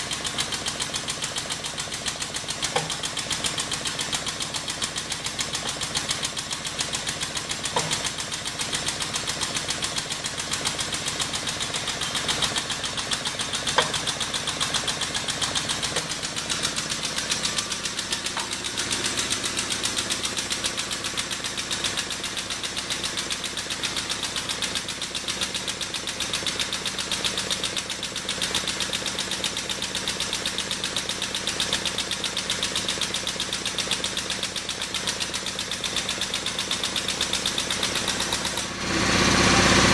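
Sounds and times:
hydraulic pump pulsing: 0:34.6 - 0:39.9.

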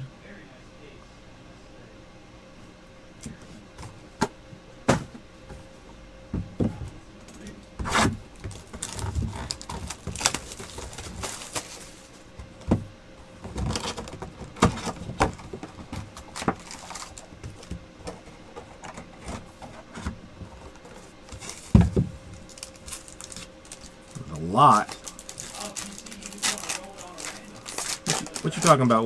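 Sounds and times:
shrink-wrap and cardboard rustling: 0:07.8 - 0:12.2, 0:13.4 - 0:17.7, 0:20.6 - 0:29.0.

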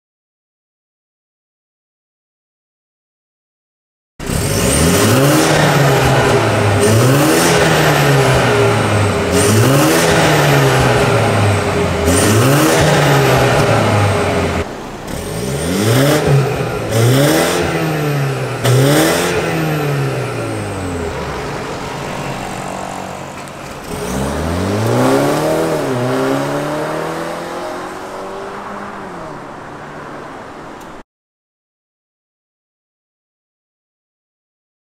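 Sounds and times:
exhaust cracks: 0:04.2 - 0:30.0
car engine revving: 0:04.2 - 0:31.0.

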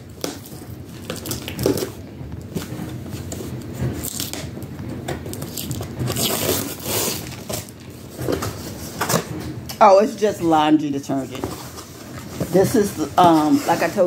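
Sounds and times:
cardboard box tearing and rustling: 0:04.0 - 0:04.4, 0:05.3 - 0:08.6.

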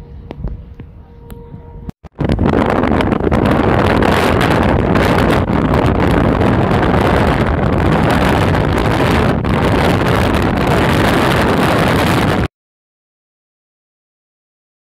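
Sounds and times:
wind buffeting microphone: 0:00.0 - 0:12.5
wind and road noise: 0:02.1 - 0:12.5.

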